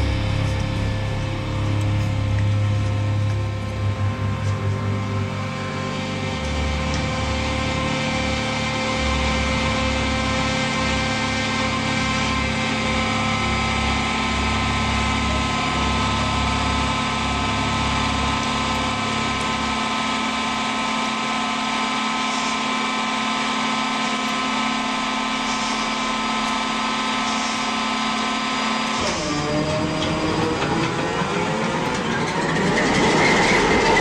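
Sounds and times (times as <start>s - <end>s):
low throbbing: 0.0s - 34.0s
mechanical engine drone: 0.0s - 34.0s.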